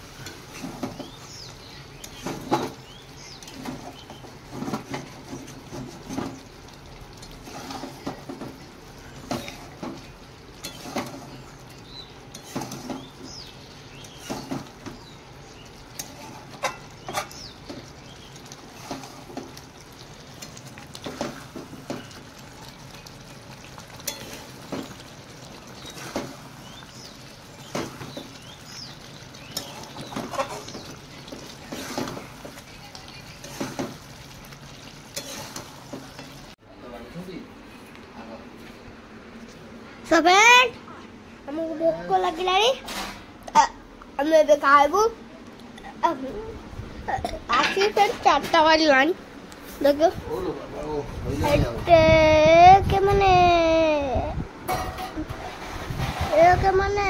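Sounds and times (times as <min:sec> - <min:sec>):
low sizzle: 0:00.0 - 0:57.0
metal spatula scraping a pan: 0:07.2 - 0:08.5, 0:10.6 - 0:11.5, 0:12.3 - 0:13.2, 0:15.9 - 0:17.5, 0:18.7 - 0:19.5, 0:29.5 - 0:32.6, 0:33.3 - 0:34.0, 0:35.1 - 0:36.4, 0:54.7 - 0:56.5.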